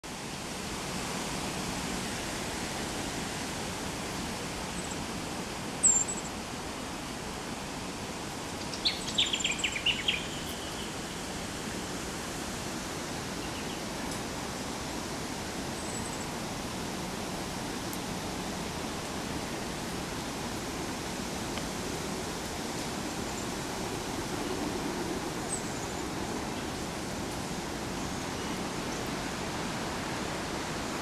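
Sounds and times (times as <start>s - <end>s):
background hiss: 0.1s - 31.0s
bird chirping: 8.7s - 10.9s.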